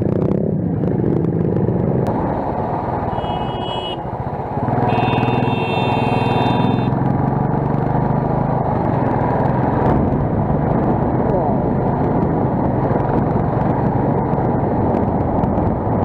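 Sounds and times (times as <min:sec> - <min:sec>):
motorcycle engine running: 0:01.2 - 0:07.4
high tones: 0:04.9 - 0:06.9.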